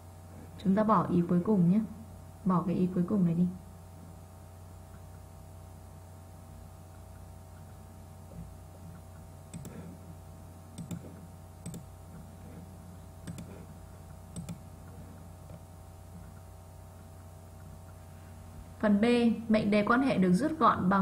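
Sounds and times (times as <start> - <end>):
steady low hum: 0.0 - 21.0
sharp computer mouse clicks: 8.9 - 9.9, 10.7 - 12.3, 13.2 - 15.6.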